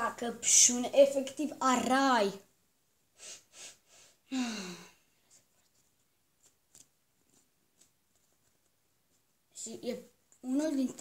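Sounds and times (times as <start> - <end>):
child sniffing: 3.2 - 5.0
child sighing: 4.3 - 5.0.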